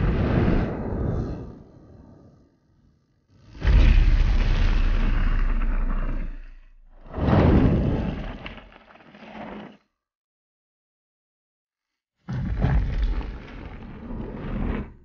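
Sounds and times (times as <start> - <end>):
flames roaring: 0.0 - 2.4, 3.4 - 9.1.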